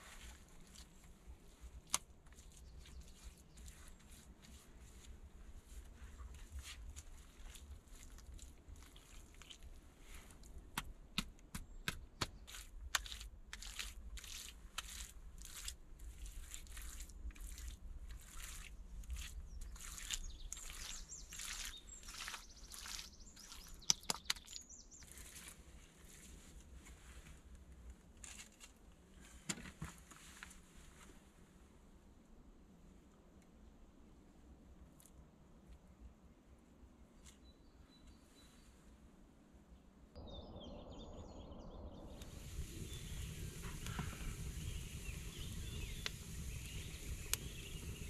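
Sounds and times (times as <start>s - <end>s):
hands smearing wet mud: 0.0s - 27.0s
birds chirping faintly: 2.3s - 8.1s, 18.4s - 26.0s, 36.5s - 39.0s, 39.7s - 48.0s.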